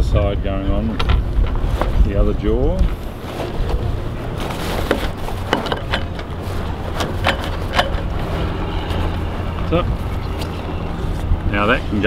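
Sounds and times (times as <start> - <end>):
low rumble: 0.0 - 12.0
hardware clicks and knocks: 4.8 - 8.3.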